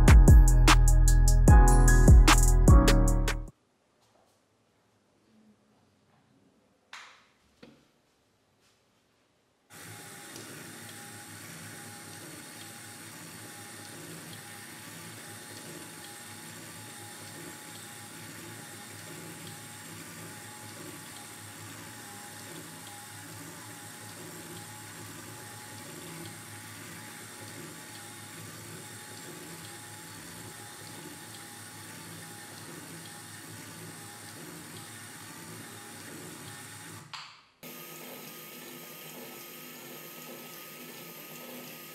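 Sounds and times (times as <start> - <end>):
small motors whirring: 9.7 - 41.9.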